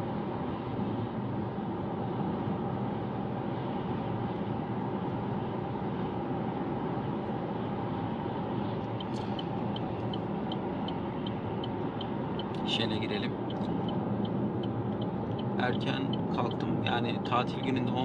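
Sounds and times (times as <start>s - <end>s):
car road and engine noise: 0.0s - 18.0s
turn signal ticking: 8.8s - 18.0s.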